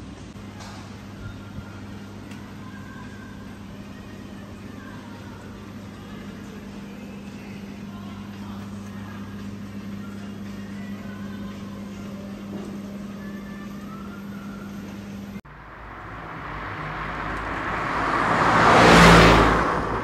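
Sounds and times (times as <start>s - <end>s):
store hum: 0.0s - 20.0s
highway traffic noise: 15.4s - 20.0s
vehicle passing close by: 15.5s - 20.0s.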